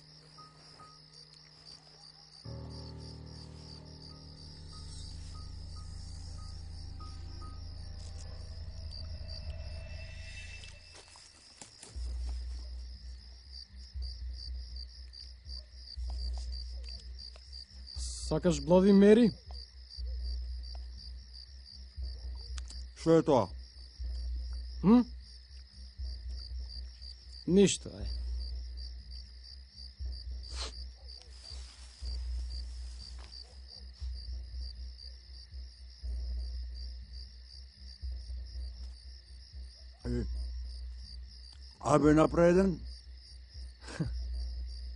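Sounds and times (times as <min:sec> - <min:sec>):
crickets chirping: 0:00.0 - 0:44.9
deep low rumble: 0:02.5 - 0:13.0
rustling: 0:31.3 - 0:33.6.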